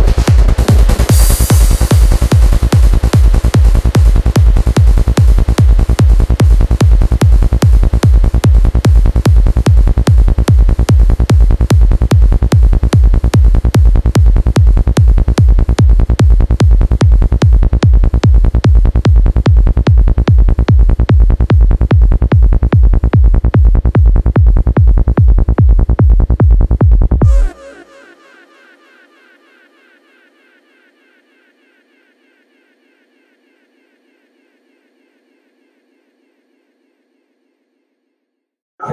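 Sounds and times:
electronic trance music: 0.0 - 21.9, 27.2 - 36.1
kick drum beat: 0.0 - 27.4.

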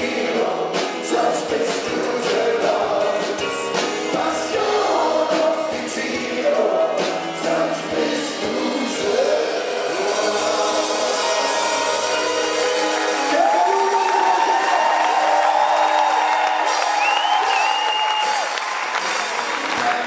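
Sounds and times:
men singing together: 0.0 - 12.3
acoustic guitar: 0.0 - 13.6
drums: 0.0 - 20.0.

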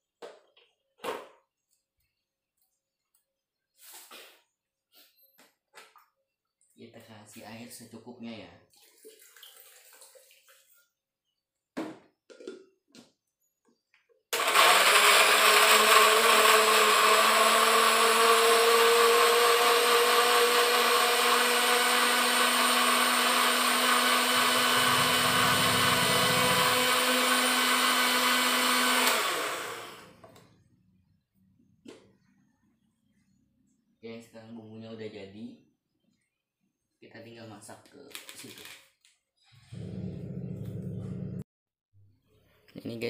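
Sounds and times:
blender motor grinding: 14.3 - 30.4.

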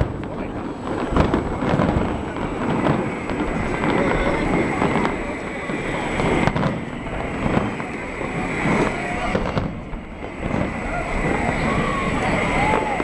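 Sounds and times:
crowd chatter: 0.0 - 13.0
fireworks booming: 0.0 - 13.0.

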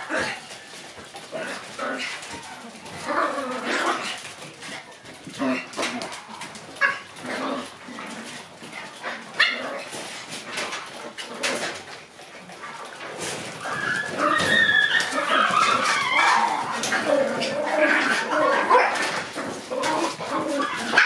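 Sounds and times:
puppies barking: 0.0 - 11.8, 12.4 - 21.0
puppies whining: 12.5 - 21.0
puppies yipping: 12.6 - 21.0.

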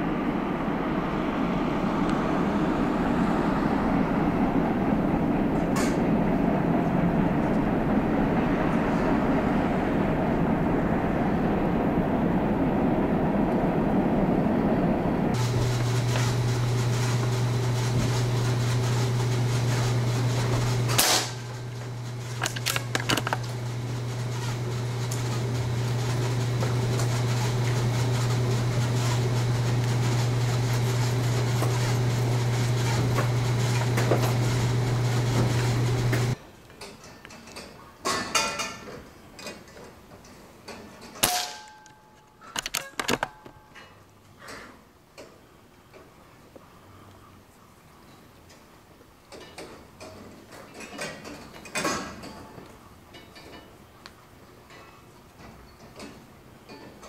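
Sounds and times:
low machine hum: 0.0 - 36.4.

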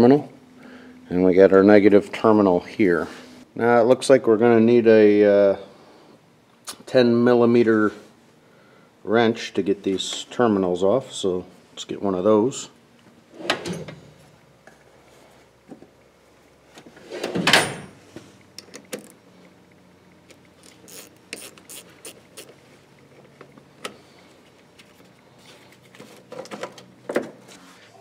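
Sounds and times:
ratchet wrench clicking: 20.6 - 22.5.

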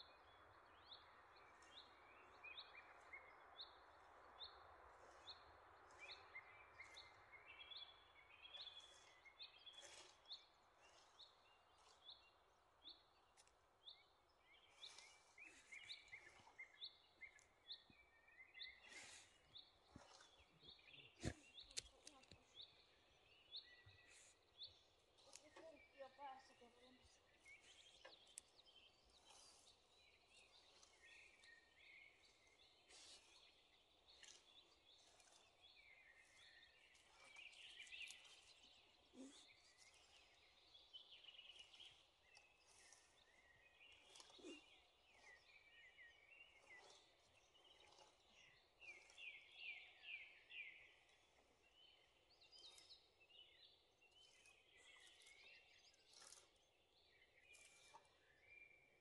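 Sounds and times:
songbirds chirping and singing: 0.0 - 59.0.

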